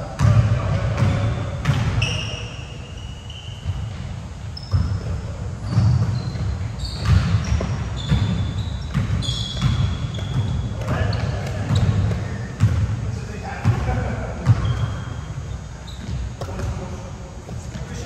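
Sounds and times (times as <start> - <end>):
basketball bouncing on gym floor: 0.0 - 2.5, 3.5 - 18.0
shoe squeaks: 1.0 - 12.7, 14.4 - 16.7.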